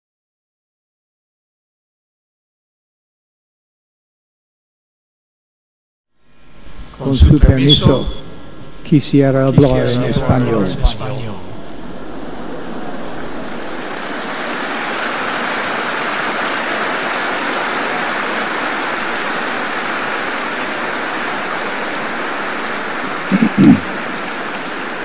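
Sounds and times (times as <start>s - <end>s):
audience applauding: 12.0s - 25.0s
short voice: 23.3s - 24.0s.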